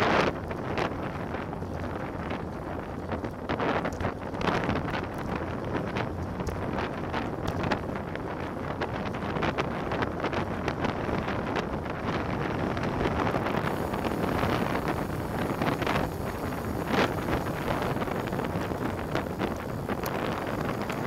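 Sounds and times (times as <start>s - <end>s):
wind rushing over microphone: 0.0s - 21.0s
tyre and road rumble: 13.4s - 21.0s.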